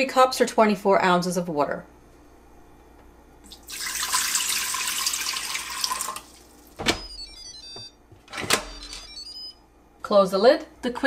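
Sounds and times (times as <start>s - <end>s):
water pouring into metal pot: 3.5s - 6.5s.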